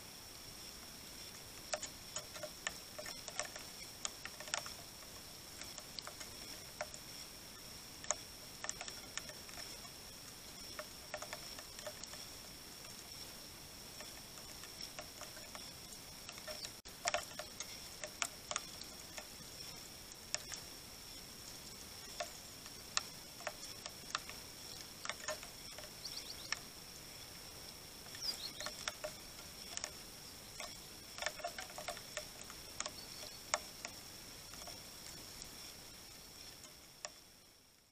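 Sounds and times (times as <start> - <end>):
faint high whine: 0.0 - 37.9
raindrops tapping on wood: 0.8 - 37.9
small bird chirp: 14.0 - 35.7.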